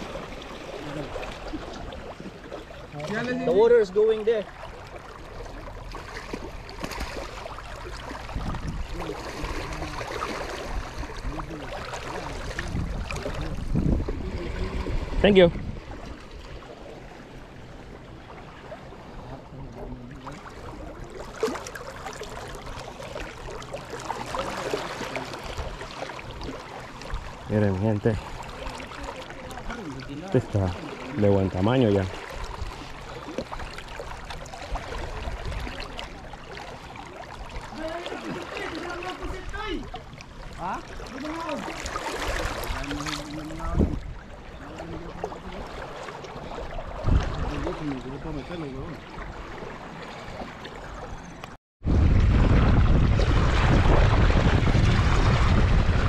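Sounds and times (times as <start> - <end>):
water splashing and trickling: 0.0 - 56.0
wind: 0.0 - 56.0
sharp splash or knock: 6.0 - 7.4.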